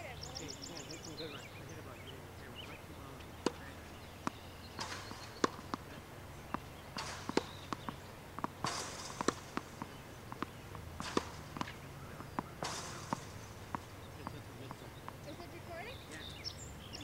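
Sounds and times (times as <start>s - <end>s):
tennis balls struck by racket: 1.8s - 17.0s
balls bouncing on hard court: 3.2s - 16.4s
shoes scuffing on court: 3.4s - 13.9s.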